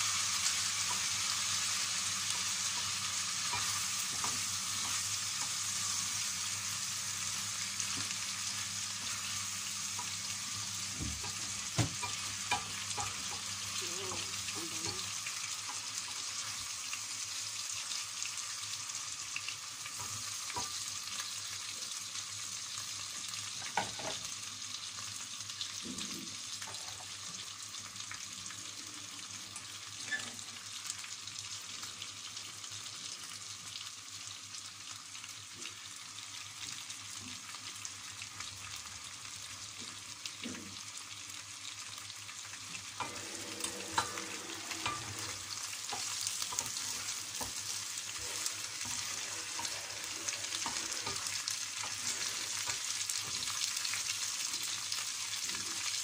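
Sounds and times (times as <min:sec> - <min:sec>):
chicken sizzling in hot oil: 0:00.0 - 0:56.0
wooden spoon scraping a pan: 0:43.0 - 0:53.6.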